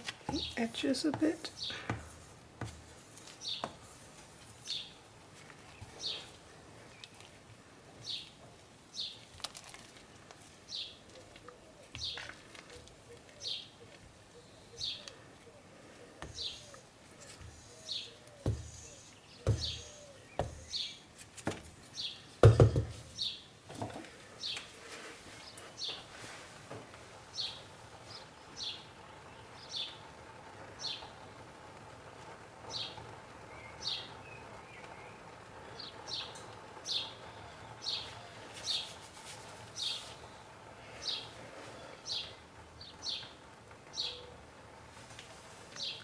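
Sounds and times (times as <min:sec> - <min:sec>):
small bird chirping: 0:16.2 - 0:21.1.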